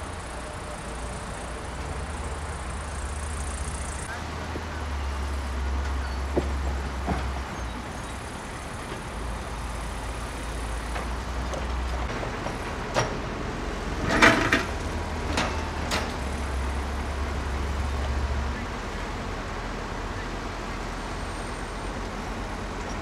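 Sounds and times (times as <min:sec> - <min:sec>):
diesel machinery rumble: 0:00.0 - 0:23.0
sharp knocks and clatter: 0:10.8 - 0:16.4.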